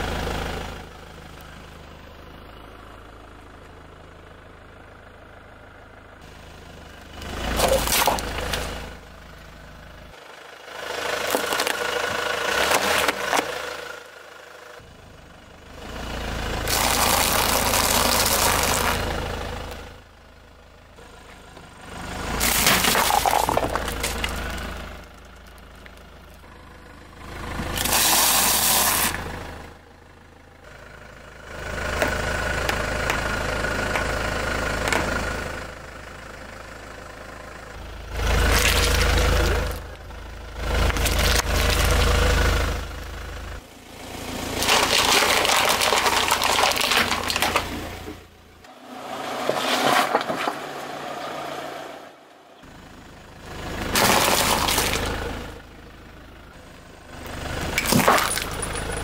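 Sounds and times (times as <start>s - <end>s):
car engine idling quietly: 0.0s - 48.8s, 52.2s - 59.0s
car tyre crushing crunchy food: 7.4s - 8.8s, 11.1s - 13.8s, 16.6s - 19.2s, 22.3s - 26.5s, 27.6s - 29.2s, 38.2s - 42.4s, 44.4s - 48.2s, 53.8s - 55.3s, 57.7s - 59.0s.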